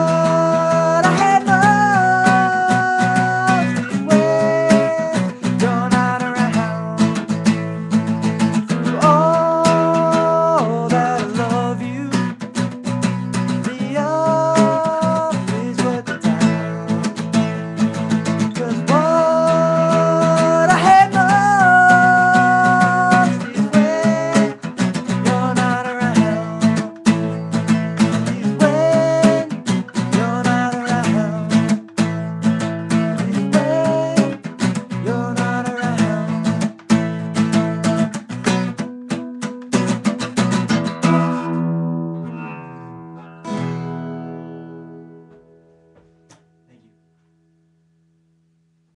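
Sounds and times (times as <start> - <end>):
man singing: 0.0 - 37.8
acoustic guitar strumming chords: 0.0 - 47.7.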